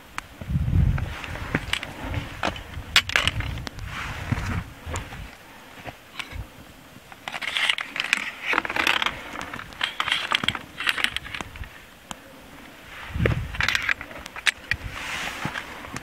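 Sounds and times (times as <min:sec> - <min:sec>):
footsteps crunching on stony trail: 0:00.4 - 0:11.8.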